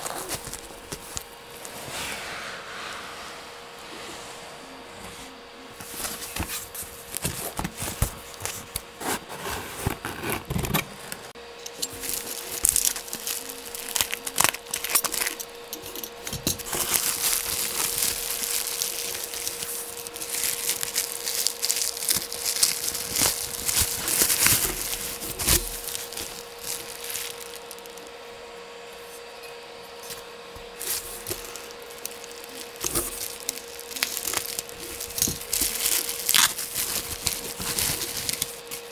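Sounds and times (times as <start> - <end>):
bubble wrap crinkling: 0.0 - 1.9, 5.8 - 29.1, 30.6 - 38.9
cardboard and foam rubbing: 0.0 - 11.3, 16.7 - 28.0, 30.6 - 38.9.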